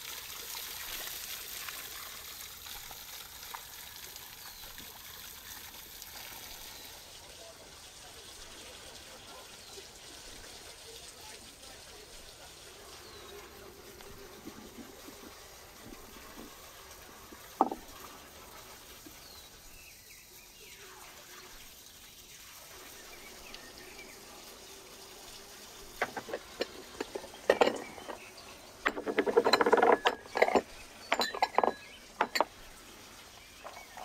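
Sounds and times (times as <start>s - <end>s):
taps on wooden board: 17.6s - 17.8s.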